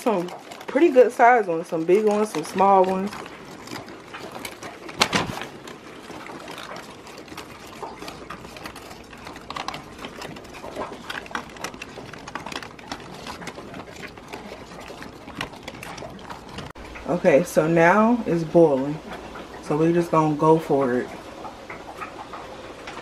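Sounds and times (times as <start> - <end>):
crawfish shells clicking and scratching: 0.0 - 17.8
paper bag crinkle: 2.0 - 16.7.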